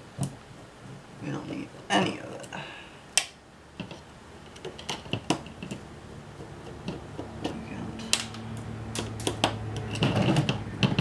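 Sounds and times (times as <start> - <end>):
low steady hum: 0.0 - 11.0
screwdriver clicks and taps: 6.6 - 11.0.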